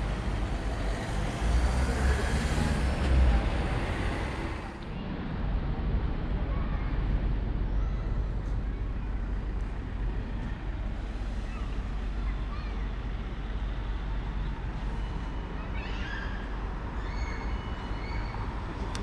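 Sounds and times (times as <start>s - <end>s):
faint traffic: 0.0s - 19.0s.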